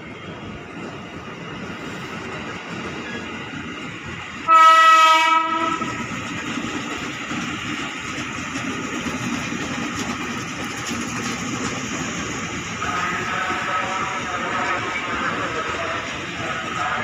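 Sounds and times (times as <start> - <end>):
train rumbling along rails: 0.0 - 17.0
electric train horn blast: 4.5 - 5.9.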